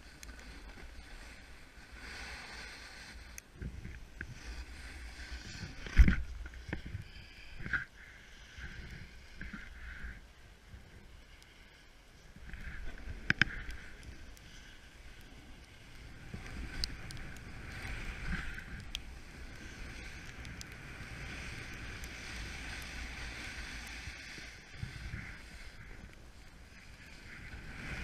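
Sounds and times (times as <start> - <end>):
snowboard swishing over snow: 0.0 - 6.9, 12.6 - 28.0
wind rumble on microphone: 0.0 - 11.4, 12.2 - 28.0.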